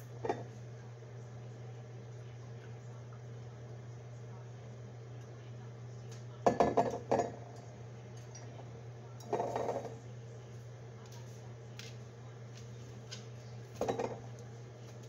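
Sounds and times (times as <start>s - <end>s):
glass bottle knocking on pot: 6.5s - 7.4s, 13.8s - 14.2s.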